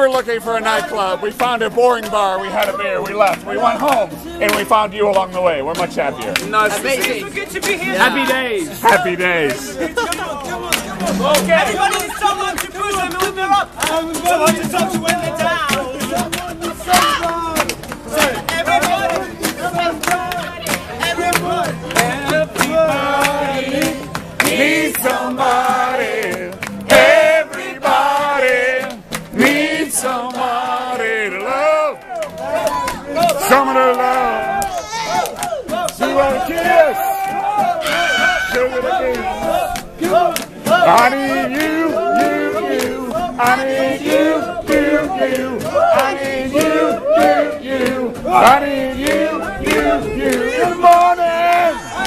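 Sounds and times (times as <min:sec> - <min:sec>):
guitar playing: 0:00.9 - 0:30.7
people singing together: 0:06.6 - 0:34.7, 0:35.5 - 0:52.0
sharp regular beats: 0:10.5 - 0:12.6.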